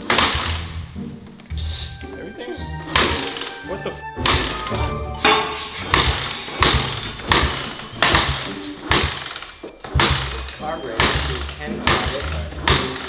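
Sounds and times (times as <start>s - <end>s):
kick-starter thumps: 5.9s - 13.0s.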